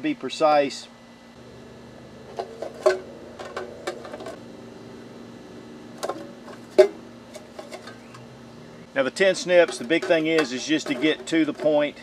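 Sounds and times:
steady low hum: 0:00.8 - 0:09.1.

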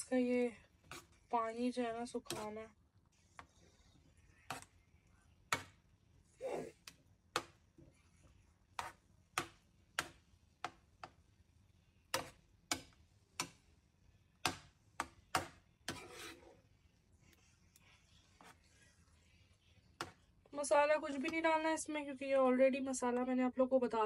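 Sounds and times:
spoon scraping frying pan: 0:00.8 - 0:02.6, 0:15.8 - 0:16.8.

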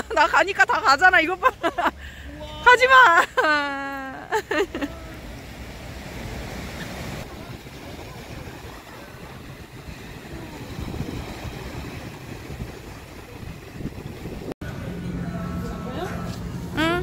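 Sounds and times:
waves washing up beach: 0:00.0 - 0:14.6
wind buffeting microphone: 0:06.2 - 0:14.6.

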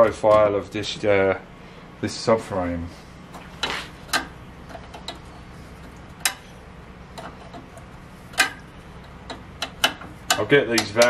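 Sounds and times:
metallic clicks of hand tools: 0:09.3 - 0:11.0.

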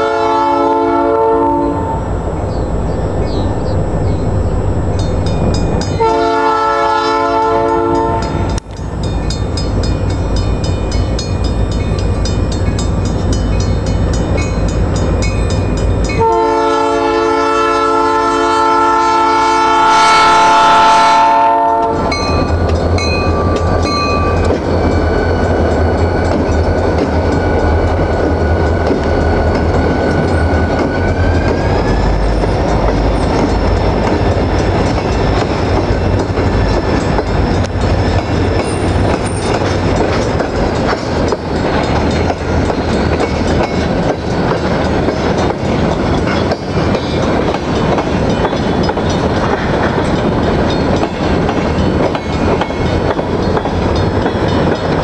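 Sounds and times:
locomotive air horn blasts: 0:00.0 - 0:02.1, 0:06.0 - 0:08.5, 0:16.2 - 0:22.2
freight train rumbling past: 0:00.0 - 0:55.0.

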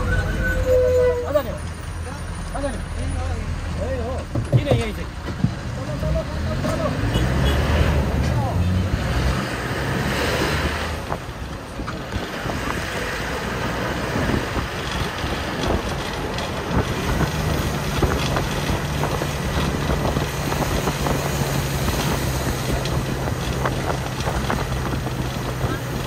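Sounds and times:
low engine hum: 0:03.3 - 0:26.0
wind noise on microphone: 0:08.8 - 0:26.0.

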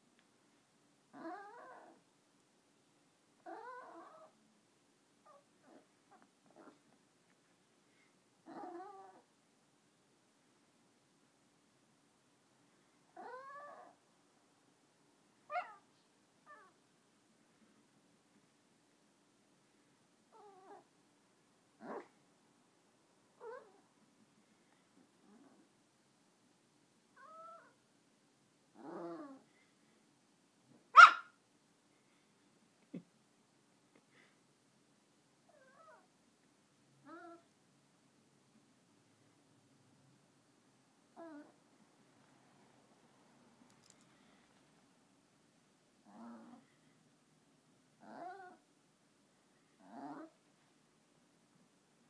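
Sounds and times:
small dog vocalizing: 0:03.4 - 0:04.3, 0:48.0 - 0:48.6
small dog calling: 0:15.5 - 0:15.9, 0:27.2 - 0:27.8, 0:30.9 - 0:31.4.

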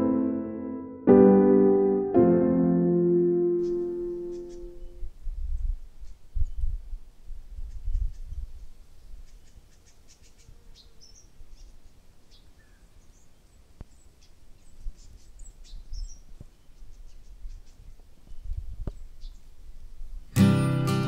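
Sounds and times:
small birds chirping: 0:03.6 - 0:19.6.

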